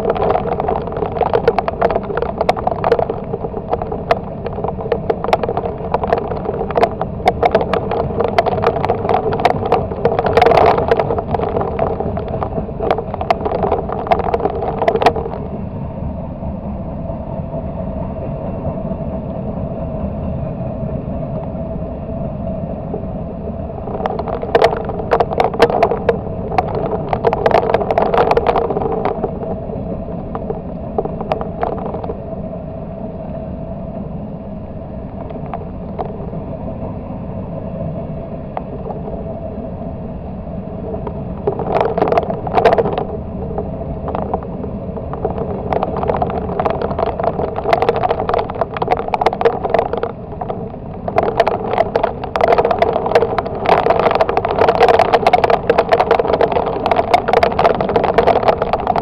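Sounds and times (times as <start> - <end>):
wheels clacking over rail joints: 0.0 - 15.7
freight train rumbling: 15.4 - 25.1.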